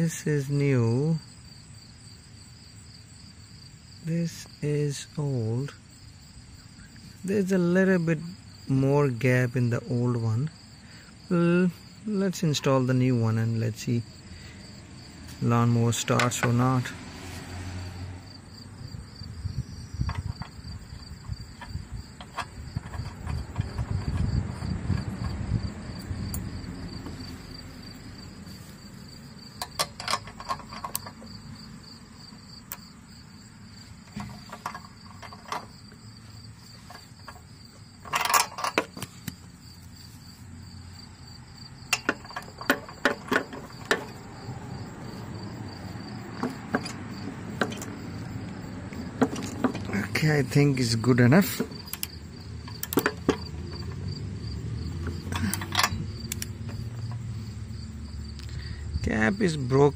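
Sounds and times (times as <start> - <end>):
crickets trilling: 0.0 - 59.9
low handling noise: 19.0 - 31.9, 32.6 - 58.2
socket ratchet clicking: 20.0 - 26.5, 29.5 - 31.4, 51.6 - 54.0, 55.0 - 57.3.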